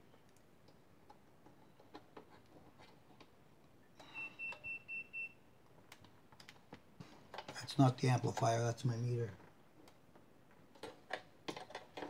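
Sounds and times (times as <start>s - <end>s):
multimeter beeps: 4.0s - 5.4s.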